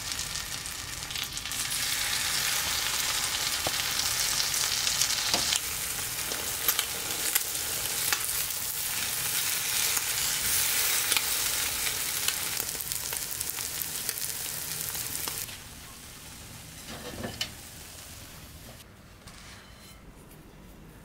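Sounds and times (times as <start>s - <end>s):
toast sizzling in a frying pan: 0.0s - 15.5s.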